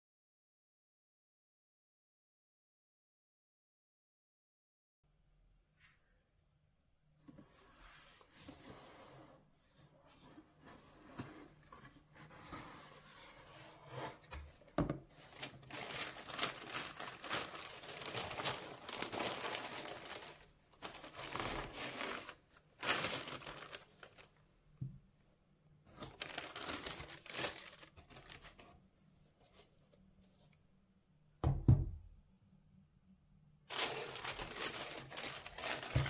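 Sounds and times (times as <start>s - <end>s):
tissue paper crinkling: 15.2s - 24.4s, 26.0s - 28.7s, 33.7s - 36.0s.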